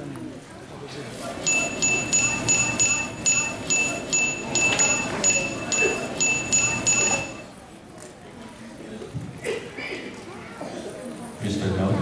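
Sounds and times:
short high electronic beeps: 1.4 - 7.5.

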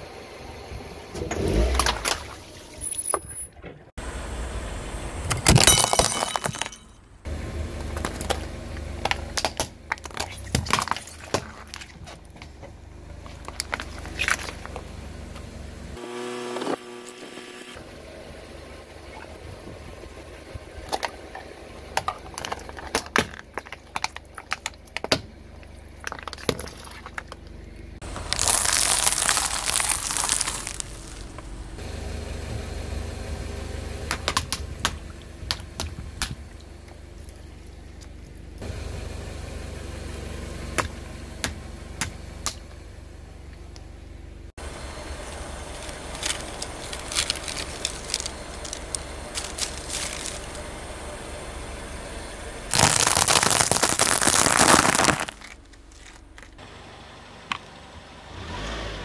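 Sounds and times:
car engine running low: 0.0 - 59.0
tyre crushing objects: 28.0 - 31.4, 45.7 - 50.6, 52.7 - 56.6.

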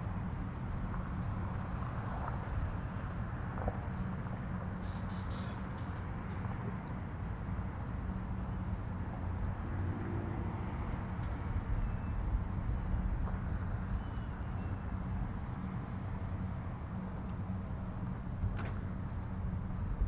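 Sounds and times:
road and cabin rumble: 0.0 - 20.0.

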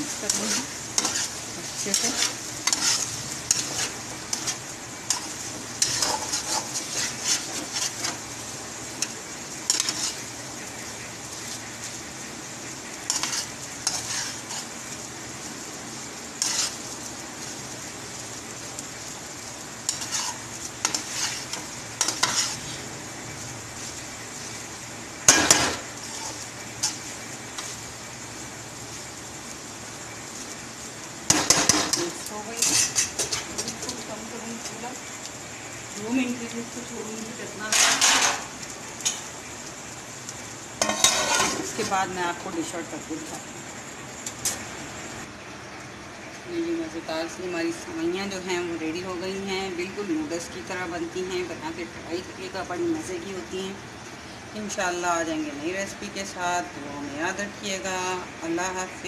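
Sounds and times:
food sizzling in frying: 0.0 - 59.0
spatula scraping a pan: 0.1 - 8.3, 9.0 - 10.3, 12.9 - 14.8, 16.4 - 16.9, 19.9 - 22.8, 25.4 - 27.8, 31.3 - 34.0, 37.7 - 39.3, 40.8 - 42.0.

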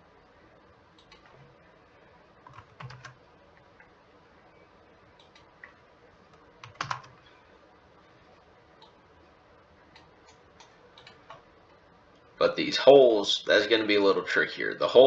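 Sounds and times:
computer keyboard keystrokes: 1.0 - 1.4, 2.4 - 3.2, 5.2 - 7.2, 10.0 - 11.4.

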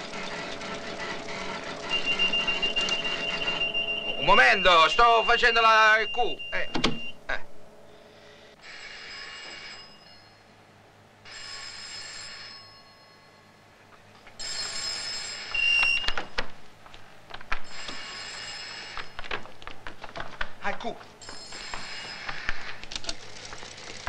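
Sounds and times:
telephone bell ringing: 1.0 - 7.2, 8.6 - 10.6, 11.2 - 13.7, 14.4 - 16.3, 17.6 - 19.3, 21.2 - 22.8.

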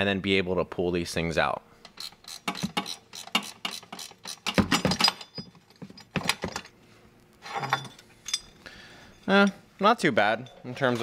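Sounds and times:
ratcheting wrench clicking: 1.9 - 5.2.

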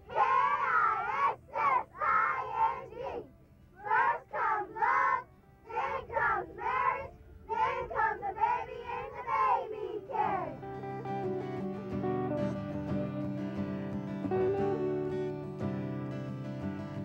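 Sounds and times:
children singing a chant: 0.1 - 10.6.

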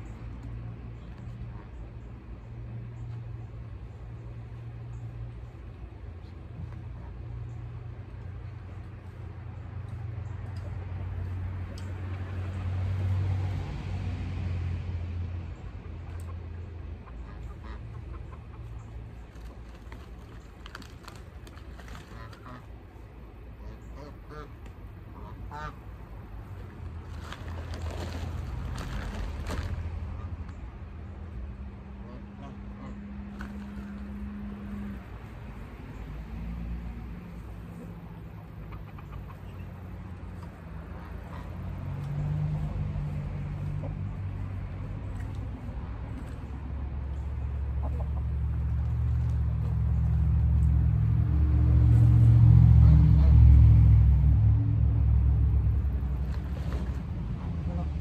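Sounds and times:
chickens clucking: 16.0 - 20.0, 37.4 - 45.4, 47.2 - 49.7.

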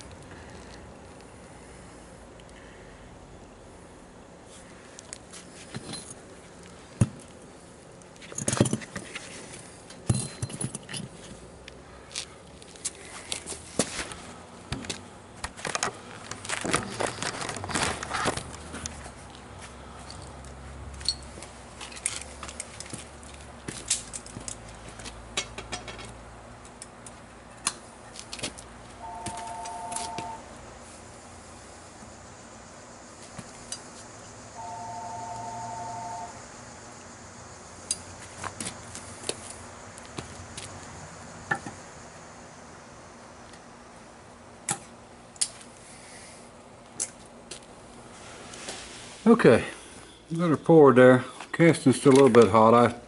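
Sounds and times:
metal parts clinking and scraping: 9.9 - 11.4, 21.0 - 24.6
metal tools clicking and tapping: 25.3 - 27.8
two-note tone: 29.0 - 30.4, 34.6 - 36.4.

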